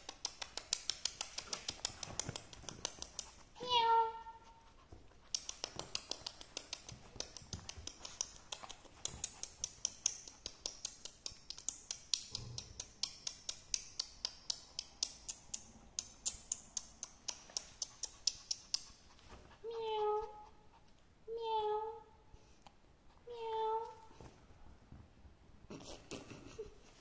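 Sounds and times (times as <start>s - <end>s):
dog panting rapidly: 4.4s - 12.1s, 16.1s - 21.2s.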